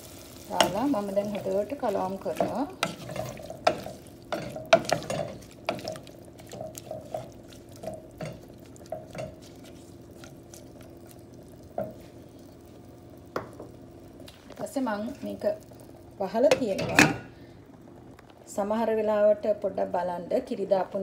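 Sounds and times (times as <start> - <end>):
steady low hum: 0.0 - 21.0
wooden spatula scraping a pot: 0.5 - 10.8.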